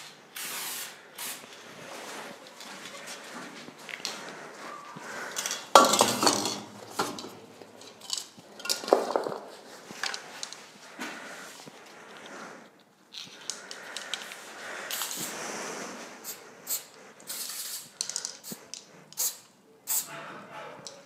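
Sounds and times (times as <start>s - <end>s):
spray paint cans clinking: 5.4s - 10.6s, 17.3s - 20.1s.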